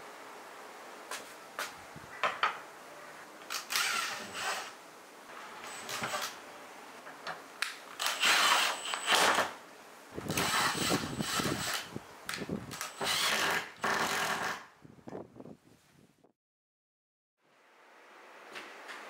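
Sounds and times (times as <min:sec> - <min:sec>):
cordless screwdriver running: 0:03.5 - 0:04.7, 0:08.0 - 0:09.2, 0:10.3 - 0:11.9, 0:12.7 - 0:14.5.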